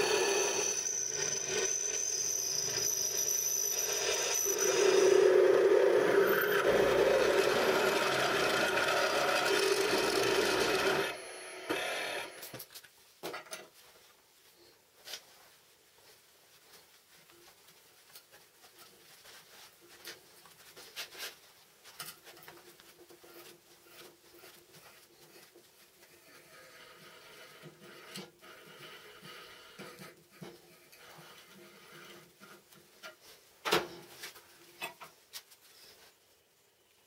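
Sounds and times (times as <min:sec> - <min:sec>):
drill bit grinding through steel: 0:00.0 - 0:12.5, 0:26.1 - 0:30.1.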